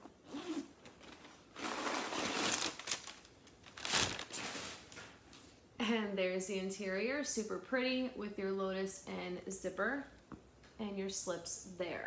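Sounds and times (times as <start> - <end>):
zipper rasping open: 0.2 - 0.8
bag crinkling: 0.9 - 5.0.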